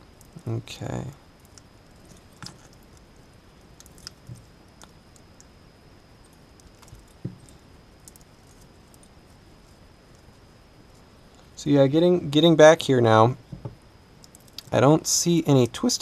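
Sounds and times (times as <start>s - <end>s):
small clicks and crinkles of wire: 1.4s - 5.5s, 6.2s - 11.5s, 14.2s - 14.8s
knock: 13.5s - 13.8s.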